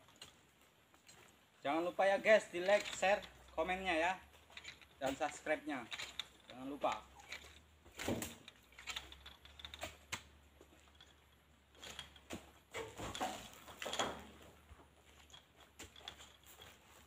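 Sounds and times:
fruit bunches thudding onto truck: 7.9s - 8.4s, 12.2s - 14.5s.

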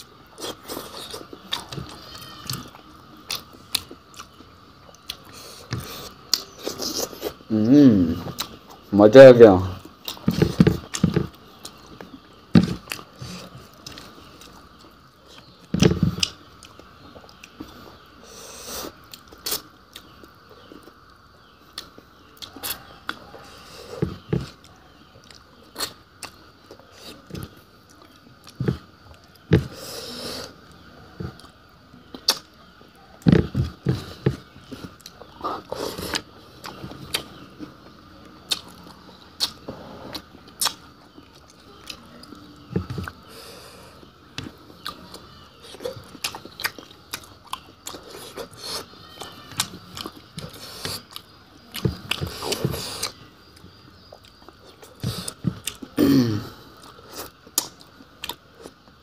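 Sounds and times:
person chewing: 0.0s - 7.6s, 8.2s - 8.8s, 9.8s - 32.5s, 33.2s - 56.0s, 56.7s - 59.0s
mouth smacks and clicks: 32.1s - 32.6s.

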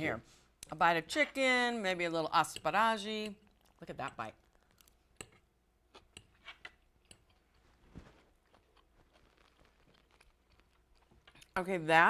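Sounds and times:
quiet chewing: 3.3s - 11.6s.

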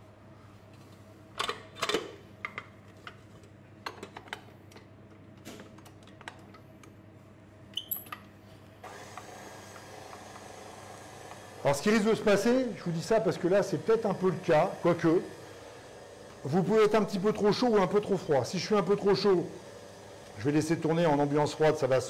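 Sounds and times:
stand mixer motor running: 8.8s - 22.0s.

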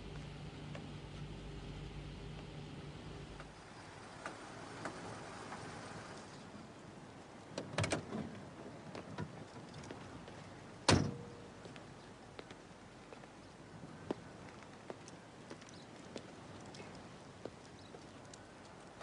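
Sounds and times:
car door shutting: 10.9s - 11.3s.

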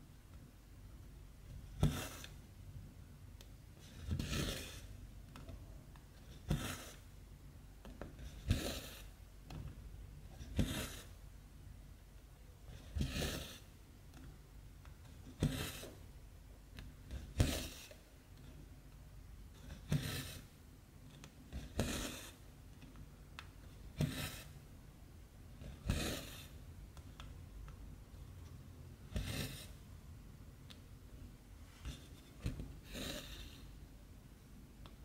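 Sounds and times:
thread rasping through fabric: 21.5s - 22.4s.

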